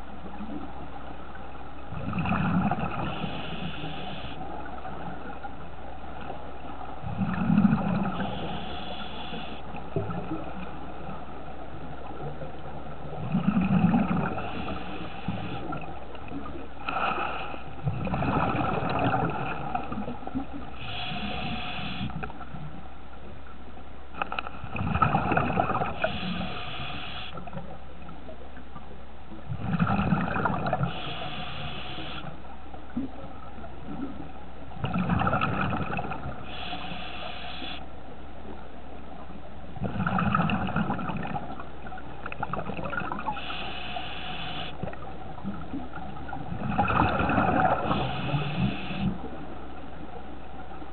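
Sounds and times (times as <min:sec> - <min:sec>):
exhaled bubbles gurgling: 0:01.8 - 0:05.4, 0:07.0 - 0:22.3, 0:24.6 - 0:27.6, 0:29.5 - 0:32.3, 0:33.8 - 0:37.8, 0:39.7 - 0:49.5
regulator inhalation hiss: 0:03.1 - 0:04.4, 0:08.2 - 0:09.6, 0:14.4 - 0:15.7, 0:20.8 - 0:22.2, 0:26.0 - 0:27.4, 0:30.9 - 0:32.3, 0:36.5 - 0:37.8, 0:43.3 - 0:44.8, 0:47.8 - 0:49.1.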